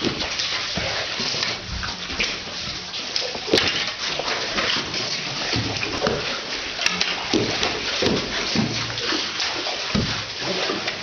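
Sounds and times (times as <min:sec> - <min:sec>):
wet mud slaps and squelches: 0:03.2 - 0:11.0.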